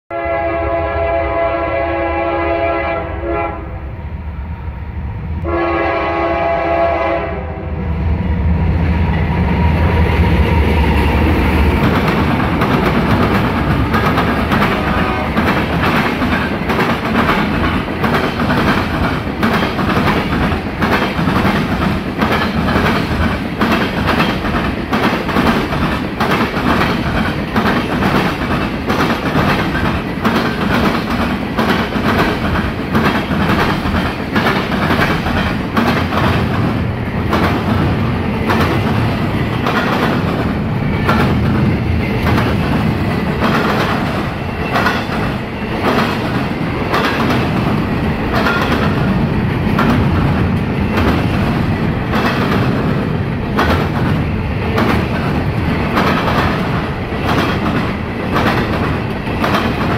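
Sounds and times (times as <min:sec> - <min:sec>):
train horn blasts: 0:00.1 - 0:03.9, 0:05.4 - 0:07.8, 0:14.8 - 0:15.4
diesel locomotive engines passing: 0:00.1 - 0:59.9
train wheels clattering on track: 0:08.8 - 0:59.9.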